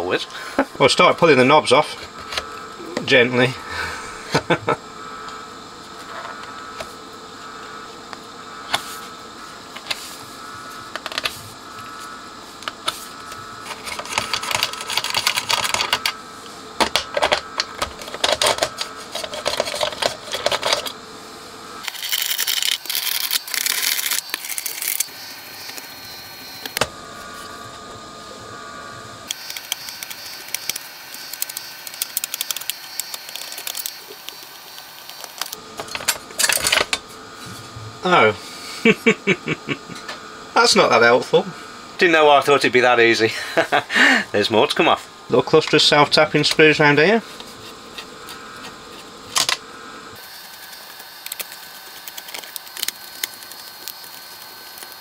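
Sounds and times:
small metal parts rattling: 21.8 - 25.0.

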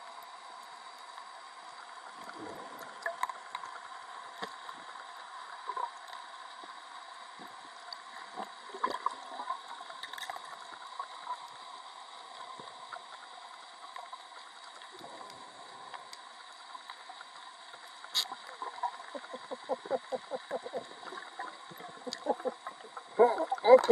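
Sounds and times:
faint clicks and crackles: 0.0 - 23.9
steady underwater hiss: 0.0 - 23.9
bubbles gurgling: 18.3 - 23.9.

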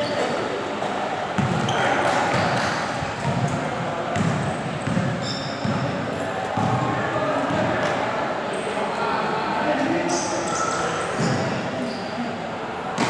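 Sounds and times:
people calling in a gym: 5.2 - 12.9.

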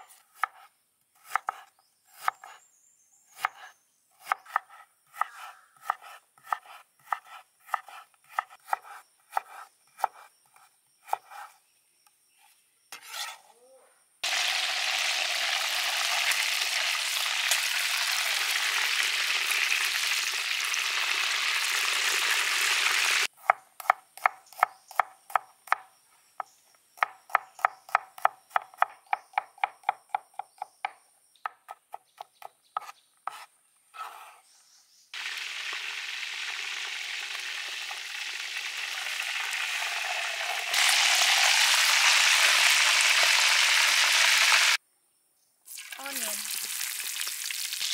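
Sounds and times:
knife chopping on wooden board: 0.1 - 2.6, 3.4 - 11.5, 23.4 - 25.9, 27.0 - 34.2
chicken sizzling in hot oil: 14.2 - 23.3, 35.2 - 44.8, 45.7 - 47.9.

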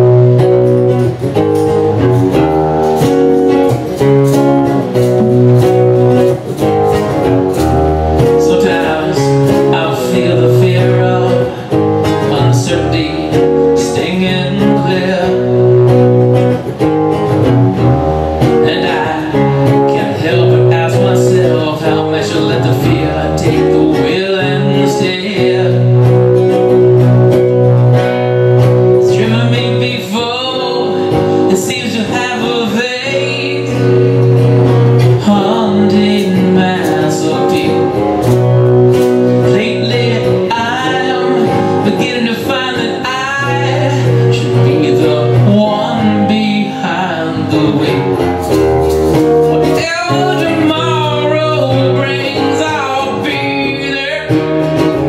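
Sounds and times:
acoustic guitars playing: 0.0 - 55.0
man singing: 7.6 - 16.3, 18.4 - 27.0, 28.8 - 48.6, 49.5 - 55.0.

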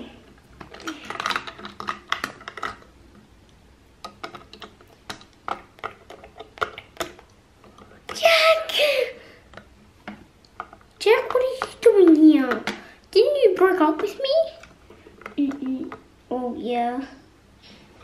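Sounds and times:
plastic bricks clicking: 0.5 - 2.9, 4.0 - 8.2.

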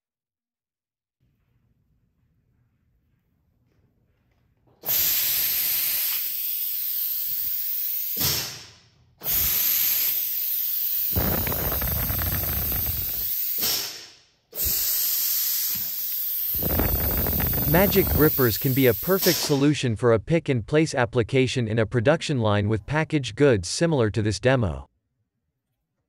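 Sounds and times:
vacuum ejector hissing: 9.3 - 14.0, 14.6 - 19.7.

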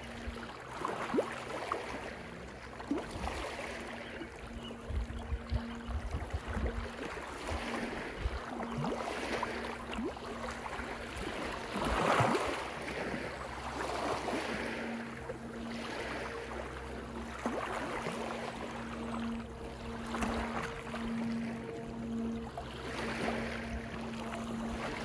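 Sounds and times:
waves breaking on rocky shore: 8.8 - 15.0.

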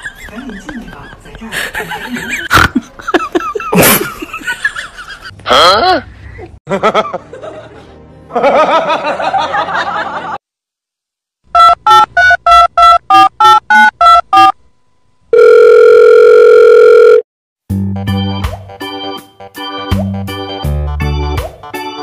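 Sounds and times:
keyboard music: 11.5 - 14.6, 17.7 - 22.0
long steady phone tone: 15.3 - 17.2.

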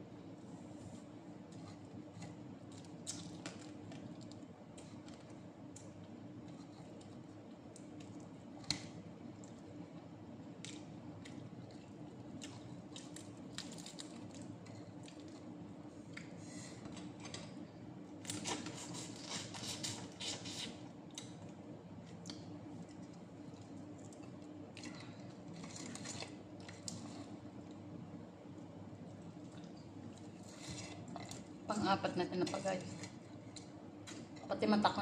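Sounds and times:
steady low hum: 0.0 - 35.0
person chewing: 10.6 - 16.4, 18.3 - 27.4.

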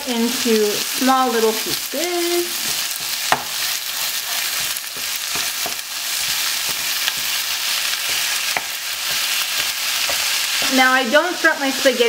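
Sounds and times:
meat sizzling in a pan: 0.0 - 12.0
wooden spoon tapping and scraping pan: 2.5 - 11.0.

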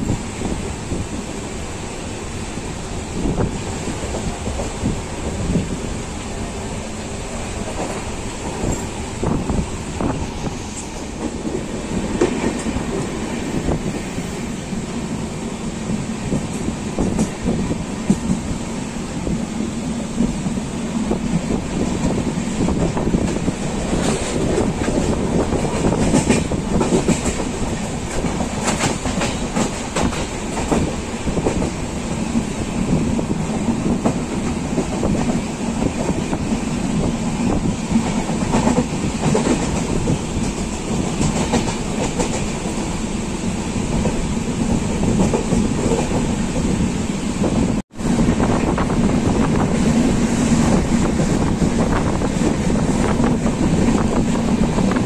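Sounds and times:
train running noise: 0.0 - 55.0
wheels clicking over rail joints: 22.0 - 36.4.

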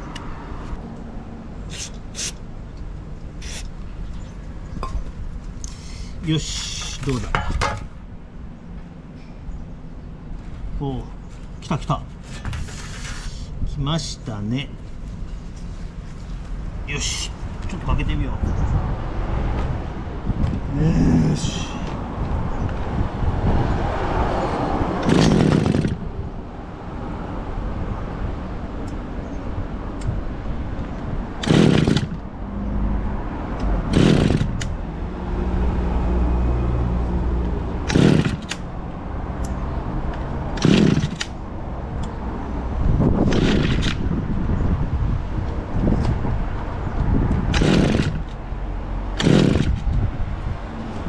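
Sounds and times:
small two-stroke engine running: 25.0 - 26.0, 31.4 - 32.2, 33.9 - 34.7, 37.8 - 38.6, 40.6 - 41.4, 47.5 - 48.4, 49.2 - 49.9.

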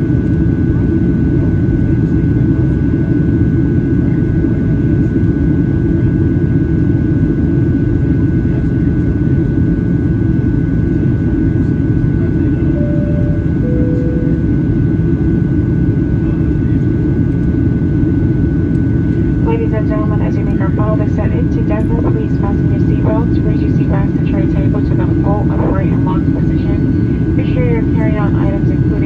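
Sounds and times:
jet engine rumble: 0.0 - 29.0
faint steady whine: 10.9 - 29.0
two-note falling chime: 12.8 - 14.9.

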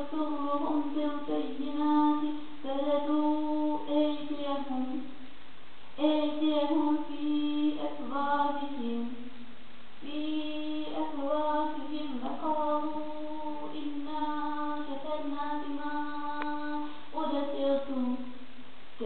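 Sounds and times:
person chanting recitation: 10.0 - 18.4.

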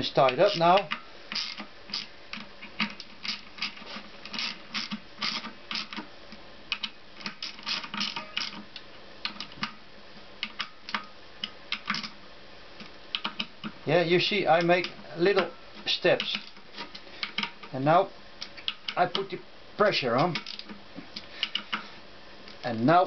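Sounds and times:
ratchet wrench clicking: 0.3 - 2.1.

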